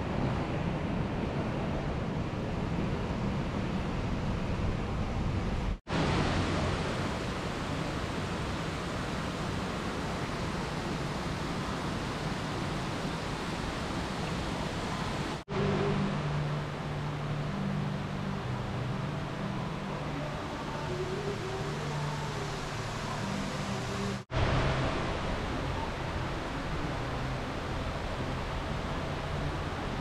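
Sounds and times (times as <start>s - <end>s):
outdoor noise: 0.0s - 30.0s
waterfall splashing into pond: 5.9s - 15.5s, 21.7s - 30.0s
low hum: 14.9s - 30.0s.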